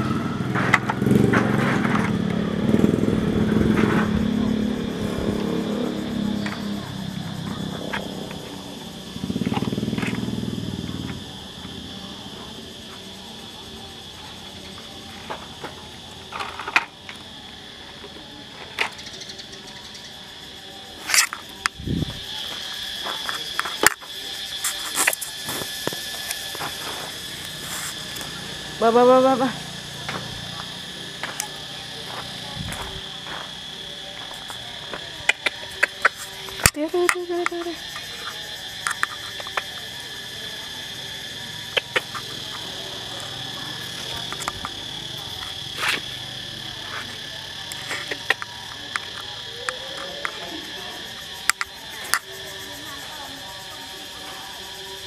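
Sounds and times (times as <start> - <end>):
insects chirring: 0.0 - 55.0.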